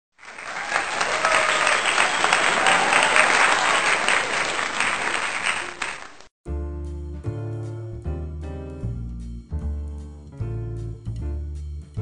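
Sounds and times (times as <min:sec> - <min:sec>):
crowd clapping and cheering: 0:00.1 - 0:06.3.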